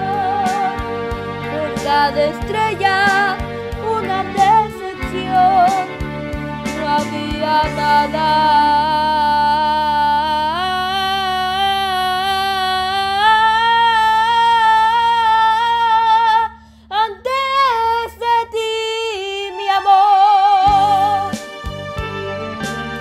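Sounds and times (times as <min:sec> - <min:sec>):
girl singing with vibrato: 0:00.0 - 0:00.8, 0:01.5 - 0:05.9, 0:06.8 - 0:21.4
backing music with plucked notes: 0:00.0 - 0:16.4, 0:18.0 - 0:23.0.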